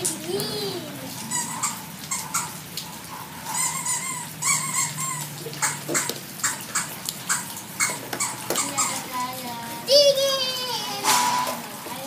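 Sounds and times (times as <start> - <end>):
high-pitched yelping squeals: 1.2 - 9.0.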